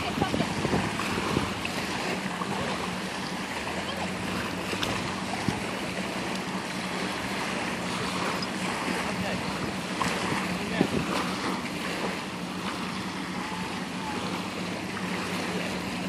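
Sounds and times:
wind on microphone: 0:00.0 - 0:02.9, 0:09.2 - 0:12.2
small waves lapping on shore: 0:00.0 - 0:16.0.

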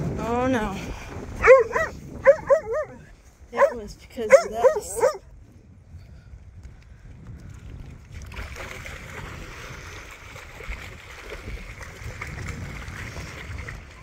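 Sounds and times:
wind rumble on microphone: 0:00.0 - 0:14.0
dogs splashing in water: 0:08.1 - 0:14.0.

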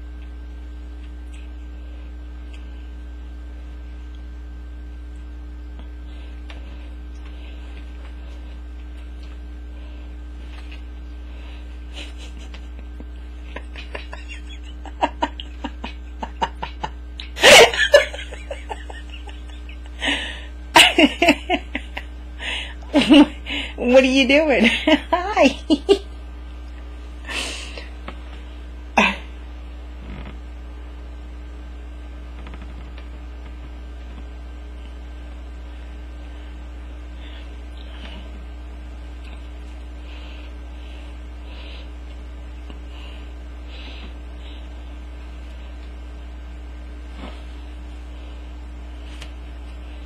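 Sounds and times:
low electrical hum: 0:00.0 - 0:50.0
person laughing: 0:11.9 - 0:23.8, 0:24.4 - 0:26.1, 0:29.0 - 0:29.3.

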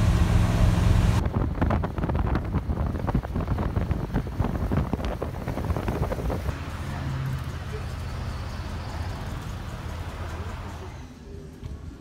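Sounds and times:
bus engine drone: 0:00.0 - 0:12.0
bus road noise: 0:00.0 - 0:12.0
wind buffeting microphone: 0:00.9 - 0:06.6.

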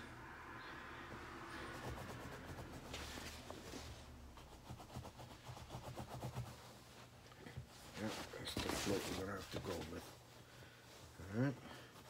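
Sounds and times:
cloth rustling against phone: 0:01.7 - 0:10.4.

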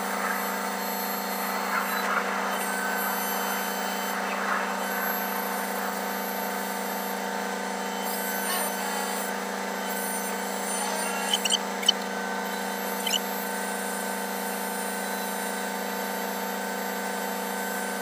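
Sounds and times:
crane machinery hum: 0:00.0 - 0:14.0
short high chirps: 0:11.0 - 0:12.1.

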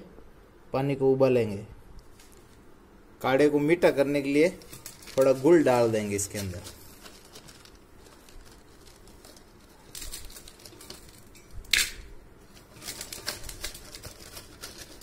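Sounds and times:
lumps clicking and rustling in bowl: 0:12.5 - 0:15.0.

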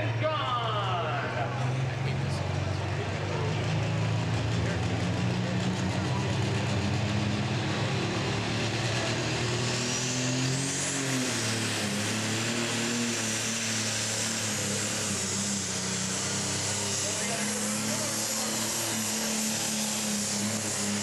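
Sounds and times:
diesel tractor engine: 0:00.0 - 0:21.0.

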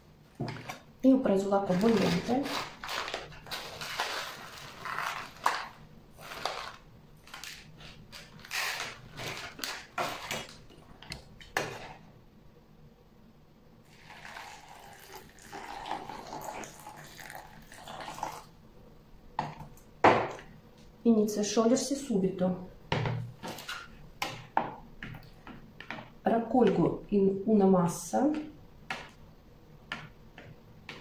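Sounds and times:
plastic bag rustling: 0:00.4 - 0:11.0
water pouring into bowl: 0:13.9 - 0:18.5.

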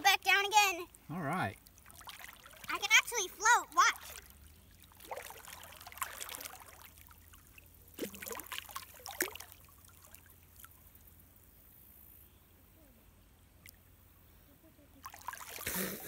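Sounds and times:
water splashing and sloshing: 0:00.0 - 0:11.3, 0:15.0 - 0:16.0.

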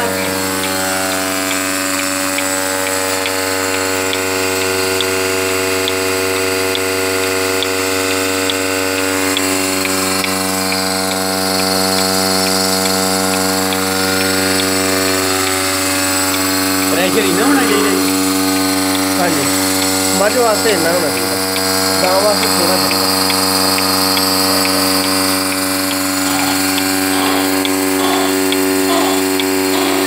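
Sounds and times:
light regular ticking: 0:00.0 - 0:30.0
vacuum pump droning hum: 0:00.0 - 0:30.0.

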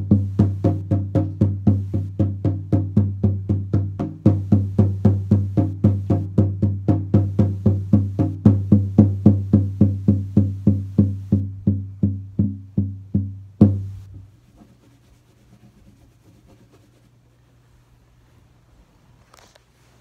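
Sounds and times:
deep hand drum beating: 0:00.0 - 0:14.2.

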